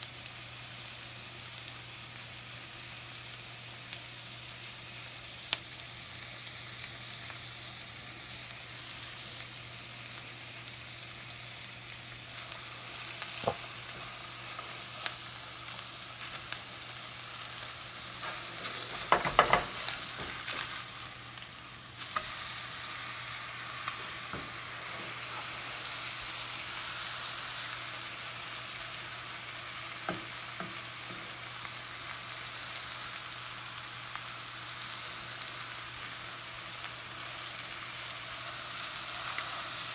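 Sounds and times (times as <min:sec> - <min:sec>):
fish sizzling in a pan: 0:00.0 - 0:39.9
spatula knocking and scraping pan: 0:18.9 - 0:20.3.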